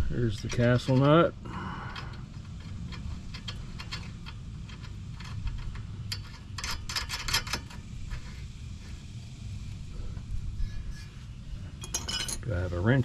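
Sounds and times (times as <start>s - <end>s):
steady low rumble: 0.0s - 13.0s
metallic clicks of nut turning: 0.4s - 1.2s, 1.9s - 7.8s.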